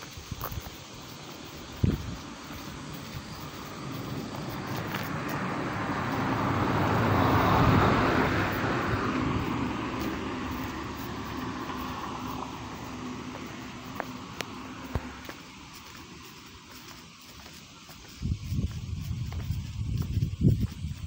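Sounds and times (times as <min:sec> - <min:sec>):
passing vehicle rushing: 0:01.6 - 0:17.2.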